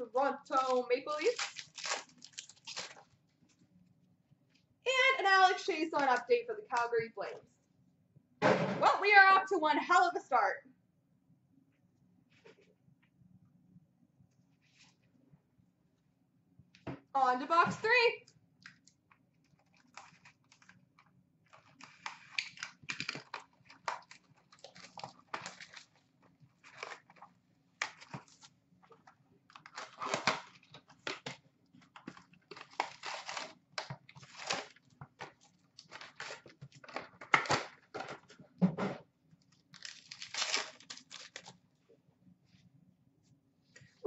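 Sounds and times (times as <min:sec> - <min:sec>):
foil card packs handled: 0:00.5 - 0:03.1, 0:21.5 - 0:38.2, 0:39.5 - 0:41.6
wrapping tearing and crinkling: 0:00.5 - 0:03.2, 0:18.6 - 0:37.7, 0:39.4 - 0:41.6.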